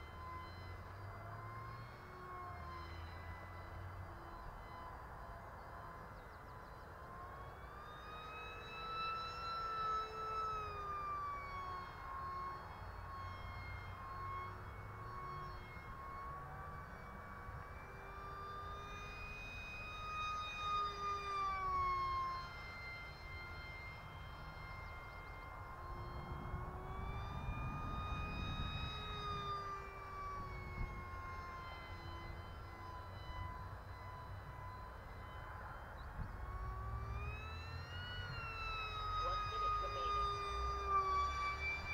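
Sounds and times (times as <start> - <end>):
electric motor and propeller whine: 0.0 - 41.9
wind rumble on microphone: 25.7 - 31.4.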